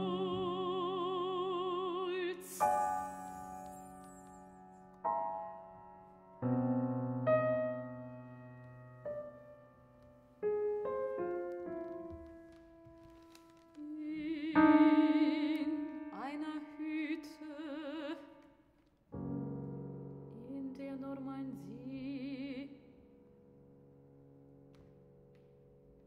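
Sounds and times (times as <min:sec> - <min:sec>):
soprano singing with vibrato: 0:00.0 - 0:04.4, 0:13.8 - 0:18.4, 0:20.3 - 0:22.9
piano chords: 0:00.0 - 0:18.4, 0:19.1 - 0:26.0.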